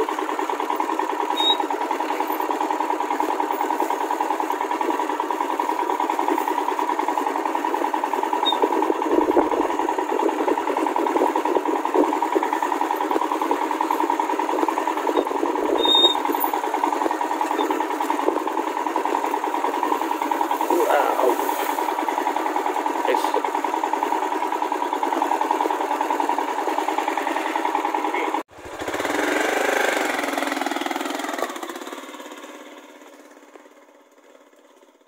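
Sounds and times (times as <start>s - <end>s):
motorcycle engine running: 0.0s - 35.0s.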